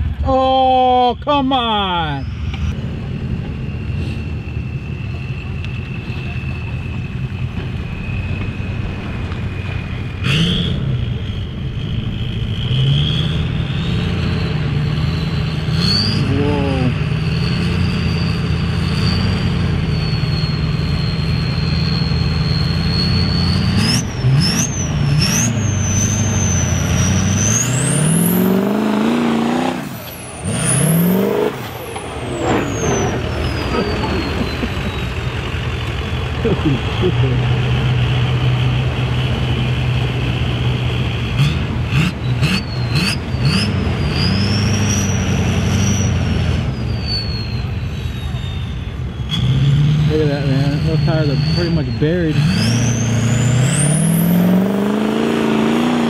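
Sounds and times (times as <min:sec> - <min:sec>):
high whine: 0:00.0 - 0:41.4
truck engine revving: 0:00.0 - 0:56.0.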